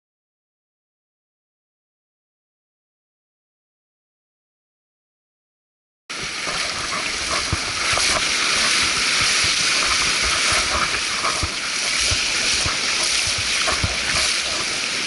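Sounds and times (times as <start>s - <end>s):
surf hissing on beach: 6.1s - 15.0s.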